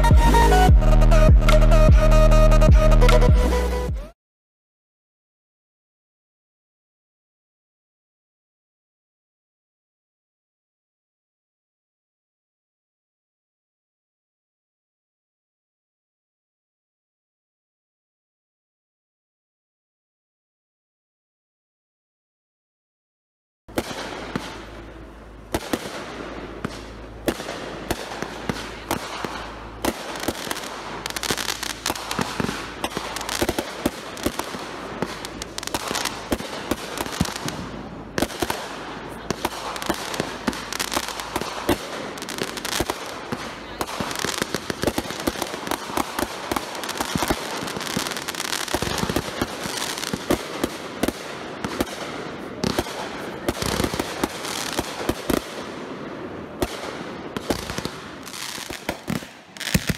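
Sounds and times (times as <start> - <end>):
fireworks bursting: 23.7 - 59.9
fireworks crackling: 23.7 - 59.9.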